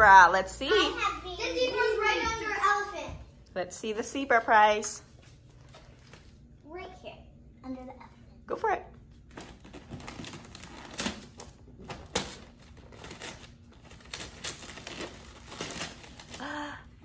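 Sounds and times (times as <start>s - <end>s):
wrapping paper crinkling and tearing: 9.3s - 16.8s.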